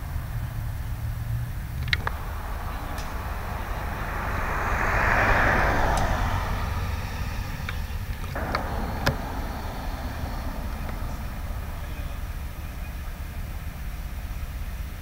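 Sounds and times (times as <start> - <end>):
low engine rumble: 0.0 - 15.0
passing vehicle road noise: 0.0 - 15.0
faint clicks: 1.8 - 13.6.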